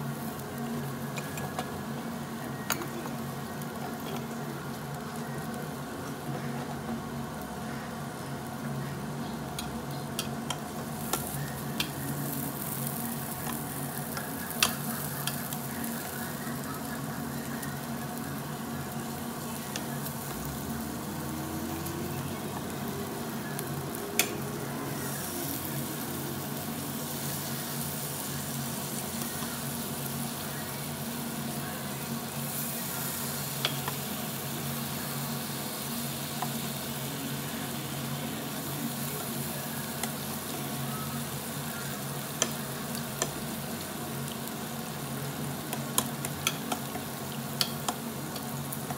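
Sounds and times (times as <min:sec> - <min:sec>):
meat sizzling on grill: 0:00.0 - 0:48.9
tongs clicking on grate: 0:24.2 - 0:24.4, 0:45.7 - 0:47.0, 0:47.6 - 0:48.9.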